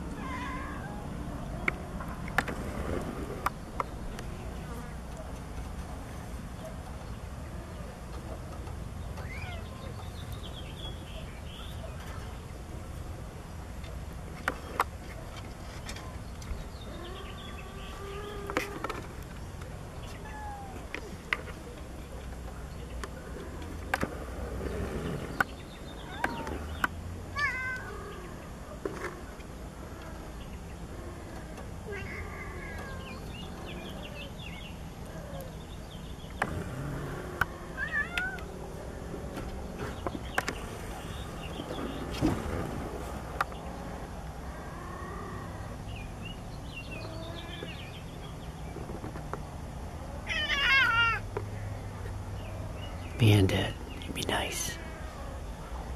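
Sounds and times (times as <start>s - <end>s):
cat yowling: 0.1s - 1.1s, 20.2s - 20.9s, 27.4s - 28.3s, 31.9s - 33.2s, 37.7s - 38.5s, 50.2s - 51.2s.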